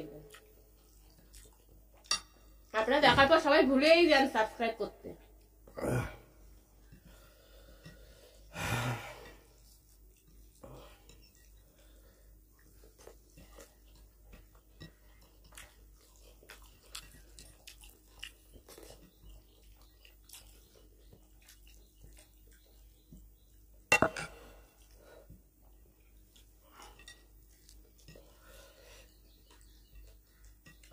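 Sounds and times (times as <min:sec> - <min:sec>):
people chewing: 0:00.0 - 0:02.9, 0:05.2 - 0:30.9
fingers mixing rice on plates: 0:06.5 - 0:08.5, 0:09.2 - 0:30.9.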